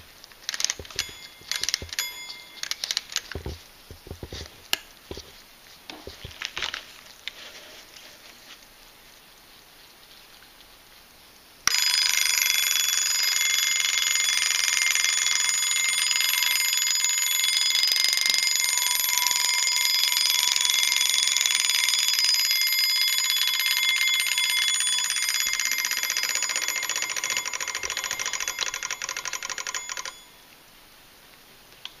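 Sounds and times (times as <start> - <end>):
alarm clock bell ringing: 0.6 - 3.5, 11.7 - 30.4.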